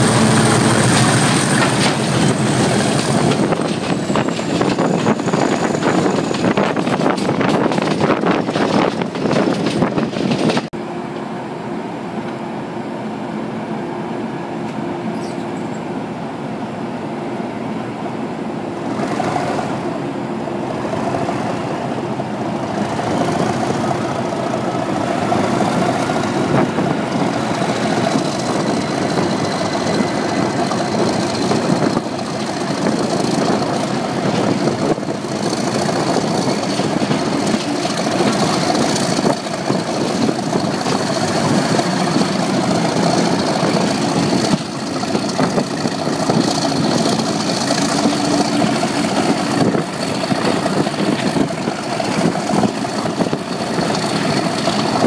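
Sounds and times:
wind noise: 0:00.0 - 0:10.7, 0:22.6 - 0:55.0
diesel locomotive engine running: 0:00.0 - 0:55.0.

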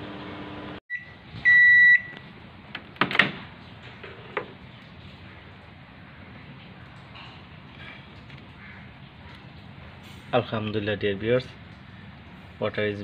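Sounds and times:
microwave oven humming: 0:00.0 - 0:02.2
microwave beeps: 0:00.9 - 0:02.2.

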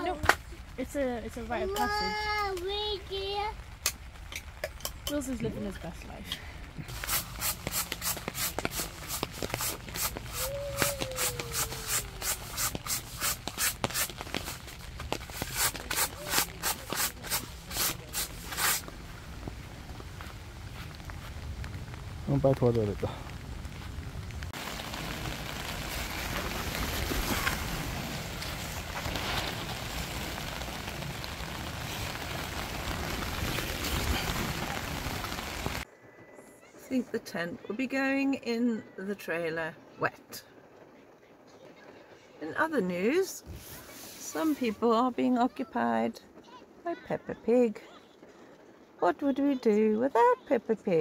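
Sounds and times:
rain on tent fabric: 0:00.0 - 0:35.9, 0:42.5 - 0:51.0
brush sweeping groundsheet: 0:06.9 - 0:19.0, 0:43.5 - 0:44.8.

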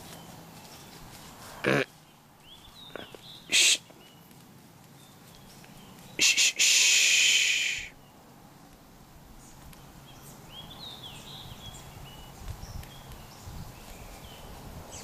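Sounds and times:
deer snorting and blowing: 0:01.4 - 0:01.9, 0:02.9 - 0:03.9
bird chirps: 0:01.8 - 0:04.3.

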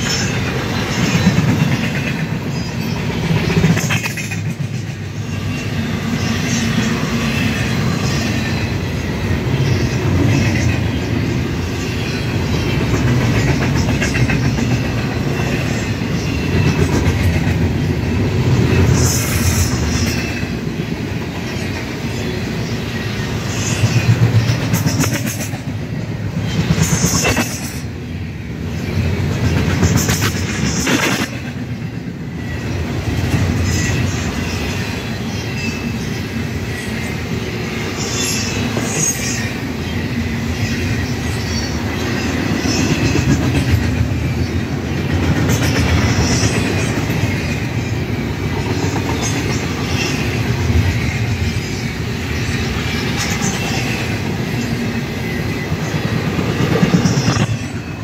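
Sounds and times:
wheels clacking over rail joints: 0:00.0 - 0:22.0, 0:23.4 - 0:27.9, 0:28.8 - 0:32.0
freight train rumbling past: 0:00.0 - 0:58.0.

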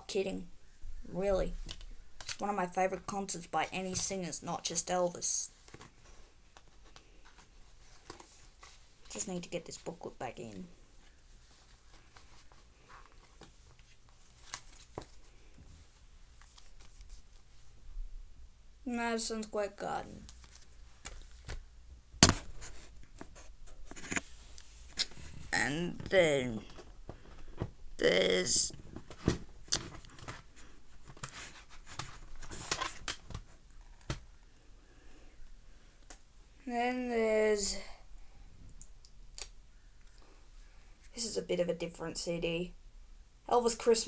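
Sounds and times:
paper rustling: 0:20.3 - 0:21.6, 0:28.8 - 0:34.2.

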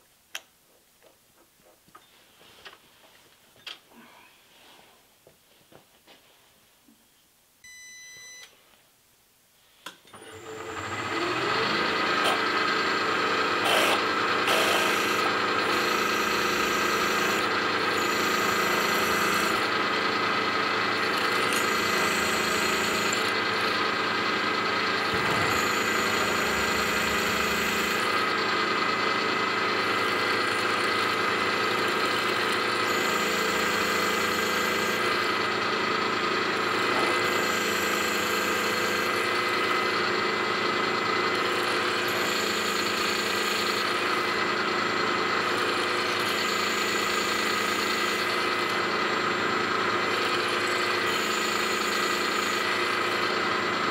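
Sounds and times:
short beep: 0:07.6 - 0:08.5, 0:25.1 - 0:28.2
click: 0:09.8 - 0:10.2
machine spindle motor whine: 0:10.1 - 0:53.9
hissy metal cutting noise: 0:25.0 - 0:28.3.

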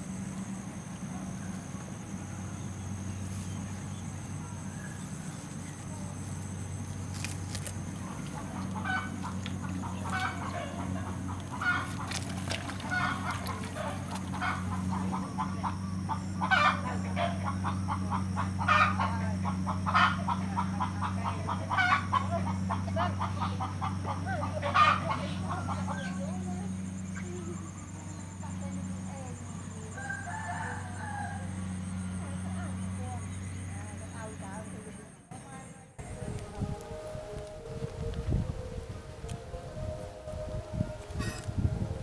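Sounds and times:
steady low hum: 0:00.0 - 0:42.0
chickens clucking: 0:08.0 - 0:26.5.

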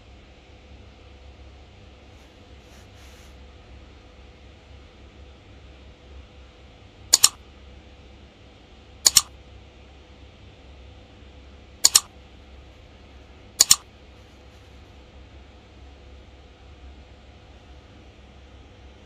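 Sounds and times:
computer mouse double clicks: 0:07.1 - 0:07.4, 0:09.1 - 0:09.3, 0:11.8 - 0:12.1, 0:13.6 - 0:13.8.

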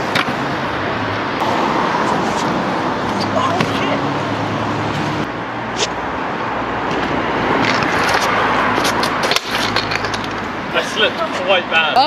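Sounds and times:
scooter wheels rolling over paving: 0:07.0 - 0:11.5.

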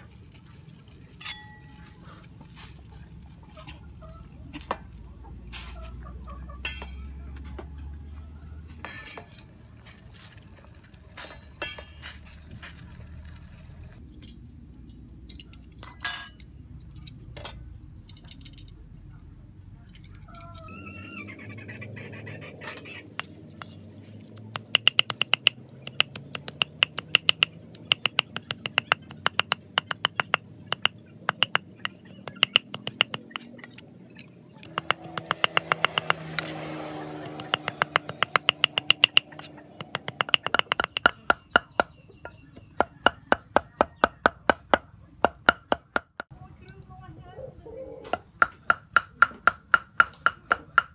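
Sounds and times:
cleaver chopping on wooden board: 0:24.5 - 0:33.4, 0:34.6 - 0:36.6, 0:37.2 - 0:46.3, 0:48.1 - 0:50.9.

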